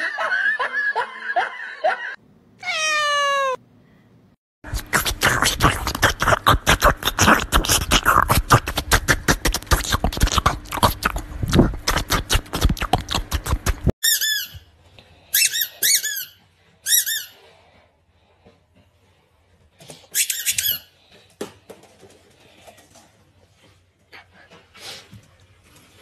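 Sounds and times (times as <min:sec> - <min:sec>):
dog licking and lapping: 0:04.8 - 0:13.9
squeaky toy squeaks: 0:14.0 - 0:14.7, 0:15.3 - 0:17.4, 0:20.1 - 0:20.9.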